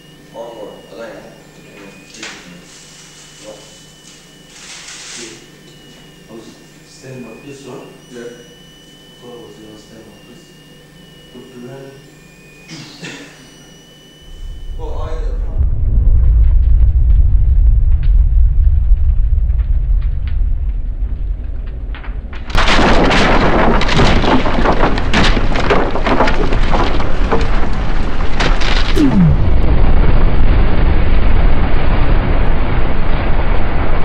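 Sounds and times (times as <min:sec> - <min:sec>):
loud explosion blast: 0:14.3 - 0:21.9, 0:28.8 - 0:33.6
deep explosion rumble: 0:14.3 - 0:22.6, 0:26.7 - 0:34.0
crackling debris: 0:15.7 - 0:33.0.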